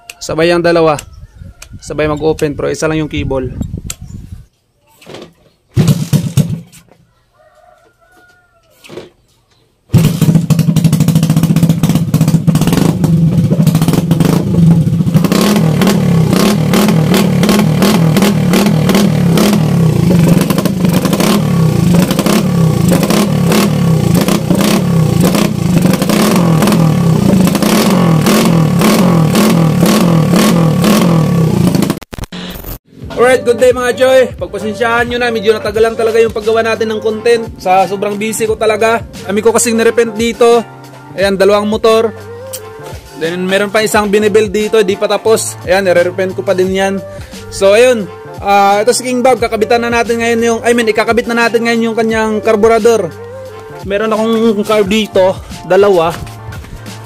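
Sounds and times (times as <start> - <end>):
motorcycle engine revving: 5.8 - 6.7, 9.9 - 33.1.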